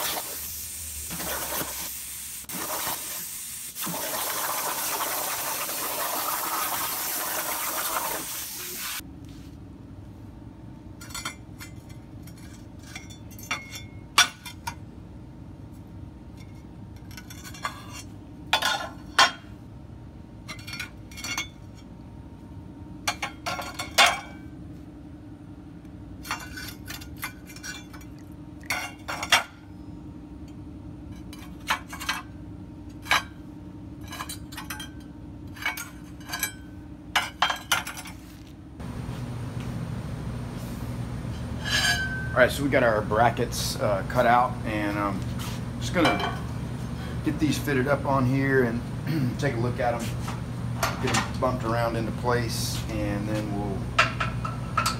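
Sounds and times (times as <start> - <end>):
plasma torch hissing: 0.0 - 9.0.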